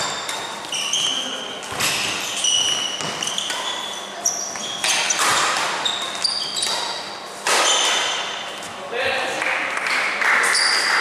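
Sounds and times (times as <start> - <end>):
racket hitting shuttlecock: 0.0 - 0.8, 1.6 - 3.9, 4.5 - 8.4
shoes squeaking on floor: 0.0 - 8.8, 10.5 - 11.0.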